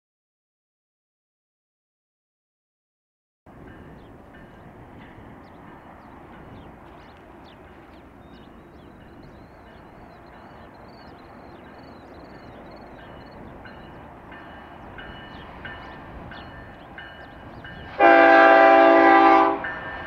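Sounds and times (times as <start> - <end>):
diesel freight train rumbling: 3.5 - 20.0
locomotive horn blasts: 17.9 - 19.8.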